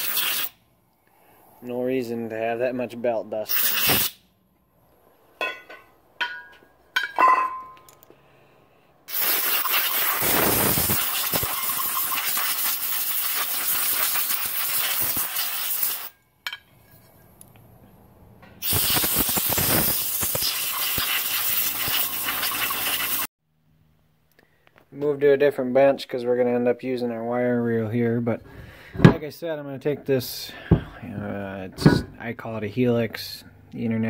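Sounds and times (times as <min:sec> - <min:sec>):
compressed air hissing from blow-gun: 0:09.1 - 0:16.1, 0:18.6 - 0:23.3.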